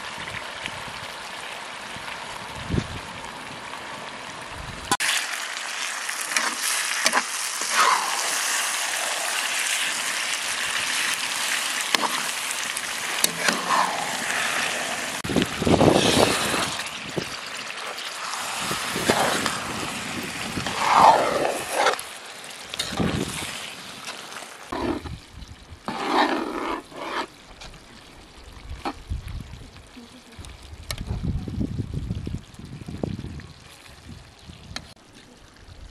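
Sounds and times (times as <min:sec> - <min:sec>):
stew sizzling in a pan: 0:00.0 - 0:30.9
metal spatula scraping pan: 0:25.9 - 0:27.3.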